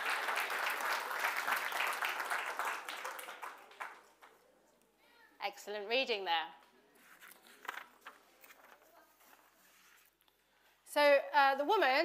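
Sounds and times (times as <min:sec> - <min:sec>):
audience applauding: 0:00.0 - 0:04.4.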